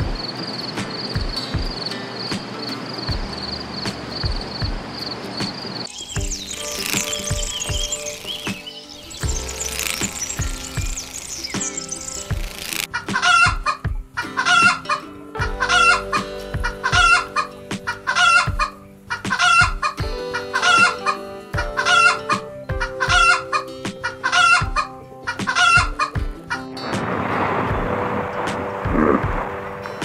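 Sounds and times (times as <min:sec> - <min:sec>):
background music with low notes: 0:00.0 - 0:30.0
domestic fowl calling: 0:06.0 - 0:26.8
rushing noise: 0:26.8 - 0:30.0.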